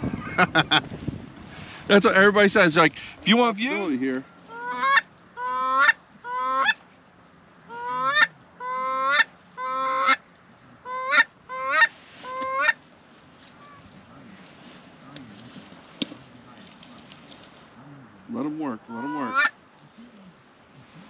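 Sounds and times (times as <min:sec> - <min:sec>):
goose honking: 0:04.5 - 0:06.8, 0:07.7 - 0:10.2, 0:10.8 - 0:12.8, 0:18.6 - 0:19.6.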